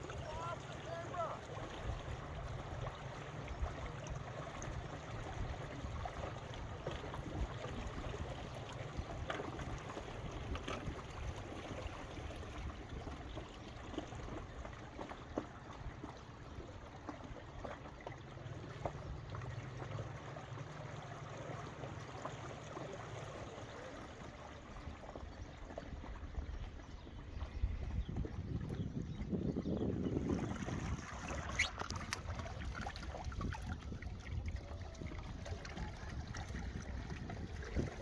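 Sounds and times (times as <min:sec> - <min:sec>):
faint ticks and splashes: 0:00.0 - 0:38.0
small waves lapping: 0:00.0 - 0:38.0
wind rumbling on microphone: 0:24.6 - 0:38.0.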